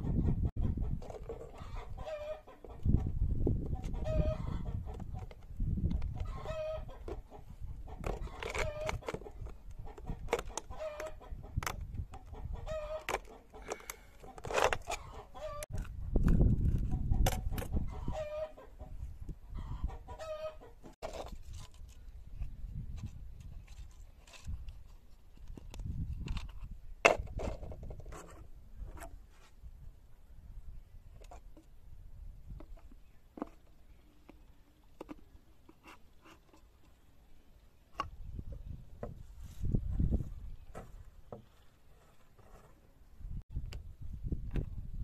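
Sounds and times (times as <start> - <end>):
chickens clucking: 0.0 - 5.3, 6.0 - 11.6, 12.2 - 15.7, 16.9 - 21.0
knife scraping plastic bottle cap: 8.0 - 11.8, 13.0 - 15.0.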